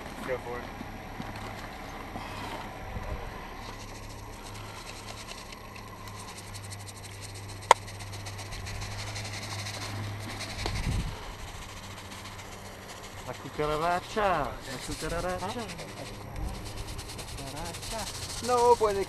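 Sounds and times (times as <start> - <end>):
low steady hum: 0.0 - 19.0
fine rapid ticks: 3.5 - 19.0
microphone handling rustle: 9.6 - 11.6.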